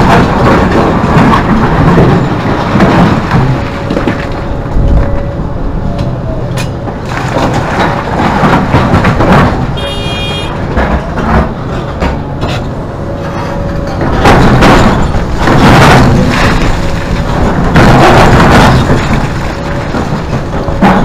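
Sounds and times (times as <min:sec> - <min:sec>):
diesel engine under load: 0:00.0 - 0:21.0
excavator bucket clanks: 0:06.0 - 0:21.0.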